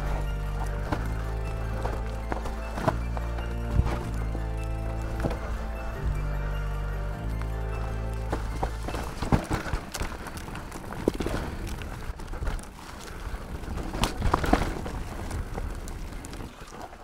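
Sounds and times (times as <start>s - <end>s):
bike knocking on rocks: 0.0s - 6.3s, 8.2s - 11.6s
bike rattling: 0.0s - 17.0s
tyres crunching over stones: 0.0s - 17.0s.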